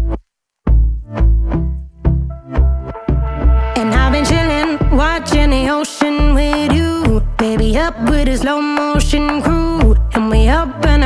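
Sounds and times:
electronic pop music: 0:01.0 - 0:11.0
woman singing: 0:03.8 - 0:11.0.

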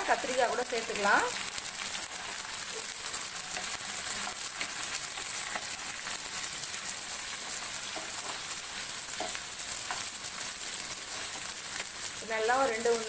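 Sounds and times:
vegetables sizzling in oil: 0:00.0 - 0:13.0
wooden spatula scraping pan: 0:01.8 - 0:11.6.

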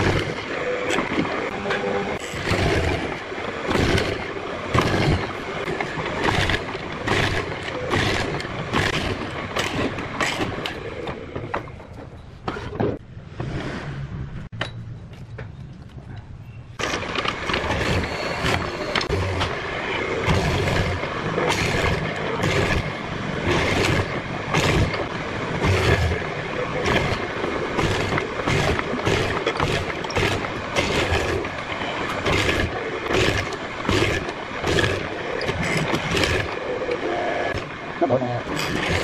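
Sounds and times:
mortiser chisel cutting wood: 0:02.2 - 0:11.1, 0:16.8 - 0:37.7, 0:38.5 - 0:39.0.

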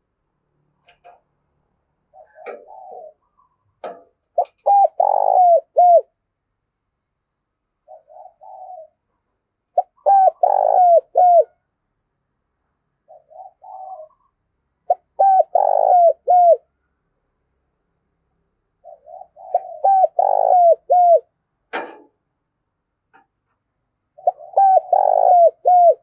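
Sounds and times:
dove cooing: 0:02.1 - 0:06.1, 0:07.8 - 0:09.1, 0:09.7 - 0:11.6, 0:13.0 - 0:16.7, 0:18.8 - 0:21.3, 0:24.2 - 0:26.0.

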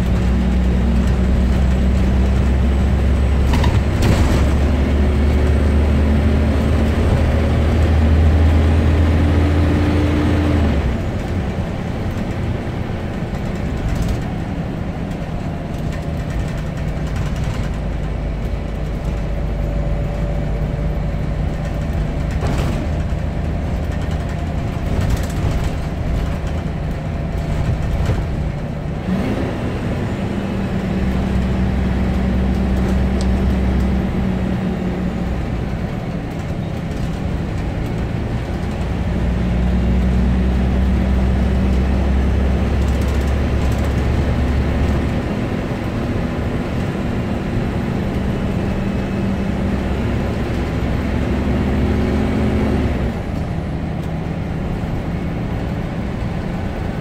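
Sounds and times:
bus diesel engine drone: 0:00.0 - 0:57.0
body knocks and rattles: 0:15.1 - 0:19.7, 0:21.5 - 0:28.8.

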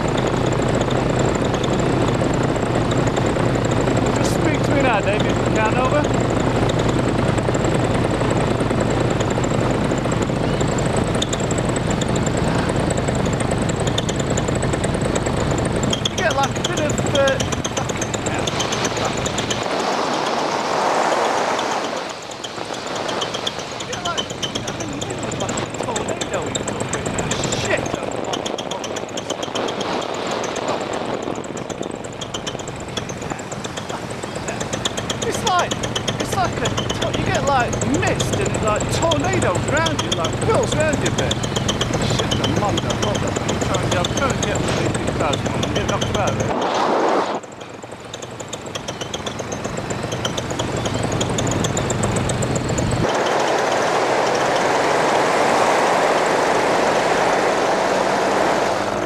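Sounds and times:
aircraft piston engine drone: 0:00.0 - 0:59.0
wind rushing past: 0:18.4 - 0:23.9, 0:46.5 - 0:47.4.

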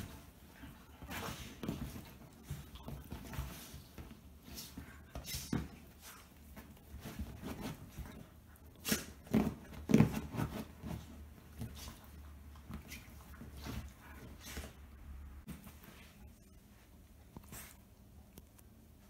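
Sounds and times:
dogs scuffling: 0:00.0 - 0:14.8.

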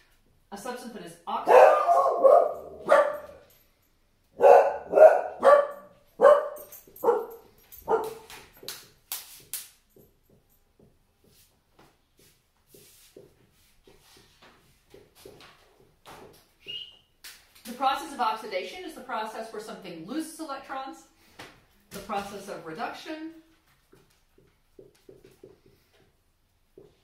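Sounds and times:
dog barking: 0:01.4 - 0:03.4, 0:04.4 - 0:08.3.

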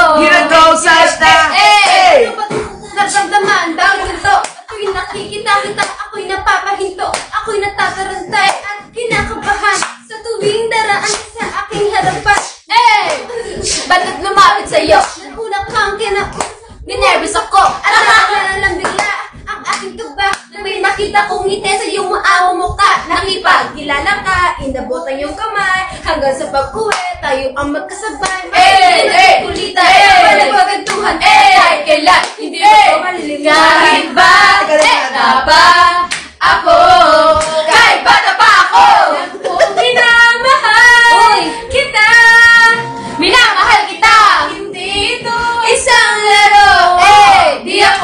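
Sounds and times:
women singing together: 0:00.0 - 0:48.0
hand clapping: 0:04.4 - 0:06.0, 0:07.1 - 0:07.4, 0:08.4 - 0:10.0, 0:11.0 - 0:11.3, 0:18.8 - 0:20.5, 0:26.9 - 0:27.1, 0:30.8 - 0:31.1, 0:32.1 - 0:32.4, 0:36.1 - 0:36.4.

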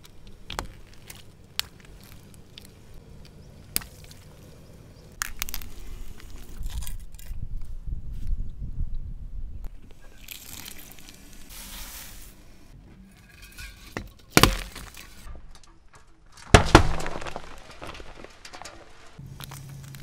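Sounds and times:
tyre crushing cans: 0:13.4 - 0:19.6.

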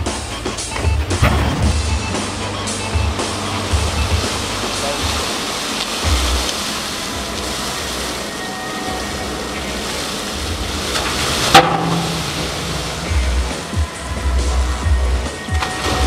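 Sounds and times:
water pouring and splashing: 0:00.0 - 0:16.0
sharp hit: 0:01.1 - 0:05.2, 0:11.4 - 0:14.6.

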